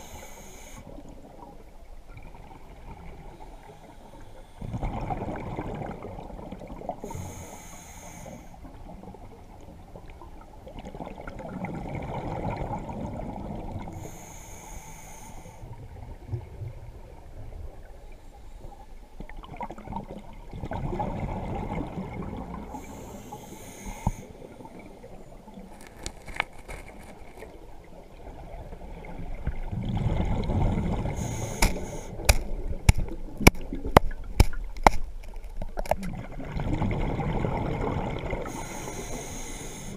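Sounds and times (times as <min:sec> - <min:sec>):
diver breathing through regulator: 0:00.0 - 0:01.0, 0:07.0 - 0:08.6, 0:14.0 - 0:15.7, 0:22.7 - 0:24.4, 0:31.1 - 0:32.4, 0:38.4 - 0:39.9
exhaled bubbles rushing: 0:04.6 - 0:07.0, 0:10.7 - 0:13.9, 0:19.3 - 0:22.7, 0:28.2 - 0:31.3, 0:35.8 - 0:38.6
sharp clicks and taps: 0:31.6 - 0:36.0.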